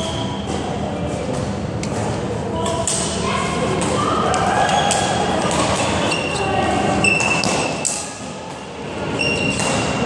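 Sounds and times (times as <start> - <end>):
trainers squeaking on floor: 9.1 - 10.0.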